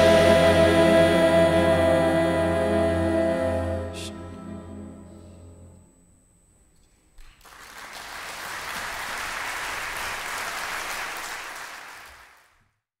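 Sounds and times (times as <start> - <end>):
audience applauding: 7.3 - 12.6.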